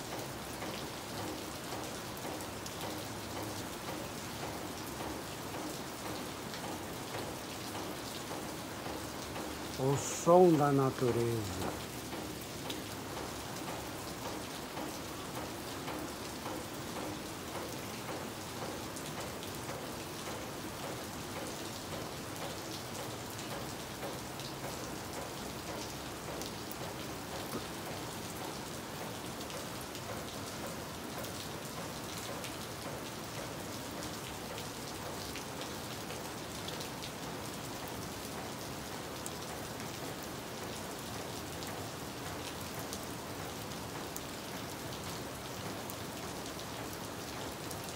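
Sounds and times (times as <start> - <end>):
steady rain falling: 0.0 - 47.9.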